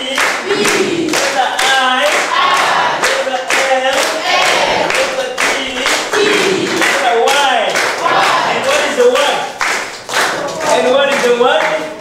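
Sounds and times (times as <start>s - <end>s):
children clapping in rhythm: 0.0s - 12.0s
children singing together: 0.4s - 1.2s, 2.1s - 3.0s, 4.0s - 5.0s.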